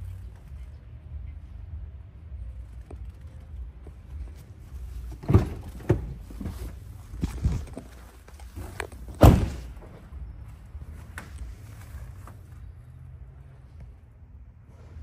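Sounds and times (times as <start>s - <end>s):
car doors thudding: 5.1s - 6.7s, 9.0s - 9.8s.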